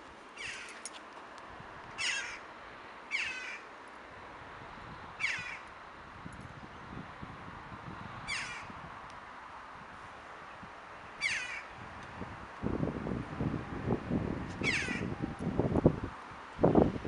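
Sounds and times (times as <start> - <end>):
bird squealing calls: 2.0 - 2.4, 3.1 - 3.6, 5.2 - 5.6, 8.3 - 8.7, 11.2 - 11.7, 14.6 - 15.1.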